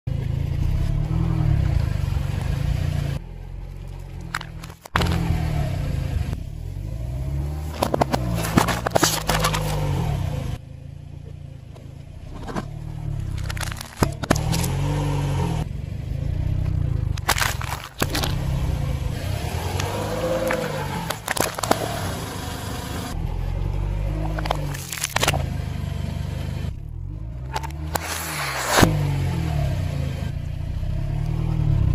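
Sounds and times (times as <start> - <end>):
low car rumble: 0.1 - 31.9
tyre crushing plastic packaging: 13.3 - 14.7, 17.2 - 18.4, 24.6 - 25.4.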